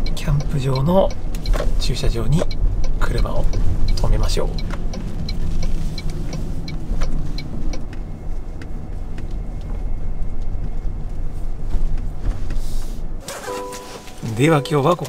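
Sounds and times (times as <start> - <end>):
light regular ticking: 0.0 - 9.4
road and engine rumble: 0.0 - 15.0.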